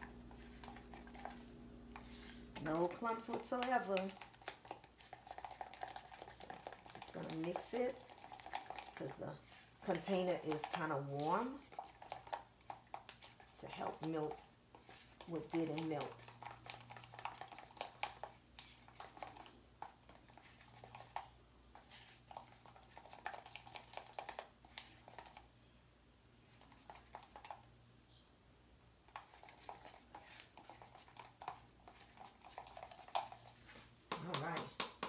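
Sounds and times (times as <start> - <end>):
low steady hum: 0.0 - 23.7.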